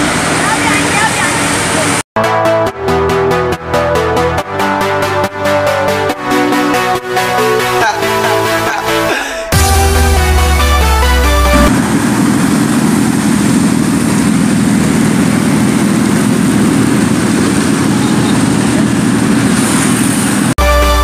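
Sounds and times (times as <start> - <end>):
motorcycle engine running: 0.0 - 2.0, 9.5 - 20.6.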